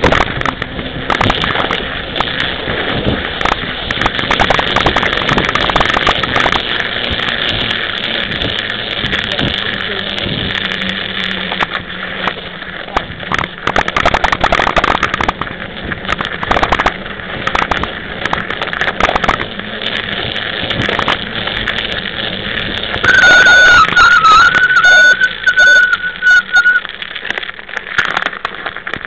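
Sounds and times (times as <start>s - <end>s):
rattling clicks over bumps: 0.0s - 23.2s, 25.5s - 29.0s
bike tyre rumble: 0.0s - 29.0s
wind: 0.0s - 29.0s
high-pitched squeal: 16.1s - 27.0s.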